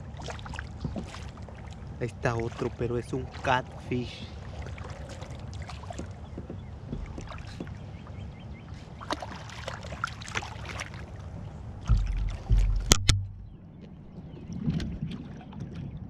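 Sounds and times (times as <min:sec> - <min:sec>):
steady low rumble: 0:00.0 - 0:09.0, 0:10.9 - 0:16.0
water splashes: 0:00.0 - 0:16.0
sharp knocks: 0:05.9 - 0:07.8, 0:11.8 - 0:13.6
heavy low thumps: 0:06.3 - 0:07.8, 0:11.7 - 0:13.8.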